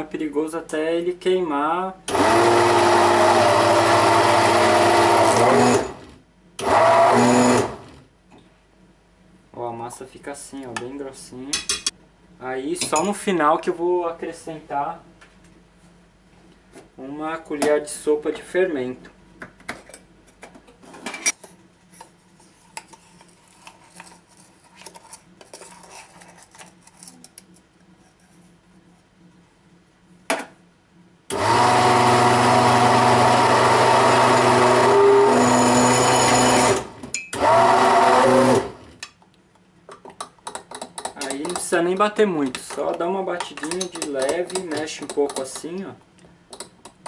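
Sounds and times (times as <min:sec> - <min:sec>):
blender motor running: 0:02.1 - 0:08.0, 0:31.3 - 0:39.0.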